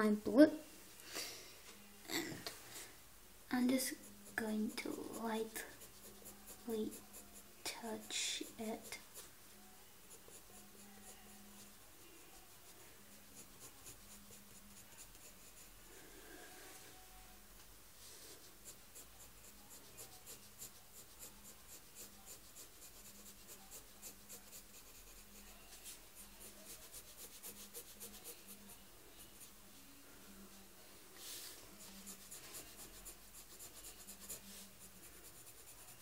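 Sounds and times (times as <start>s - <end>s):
pencil scratching on paper: 3.7s - 9.3s, 10.1s - 15.8s, 18.1s - 29.6s, 31.2s - 36.0s.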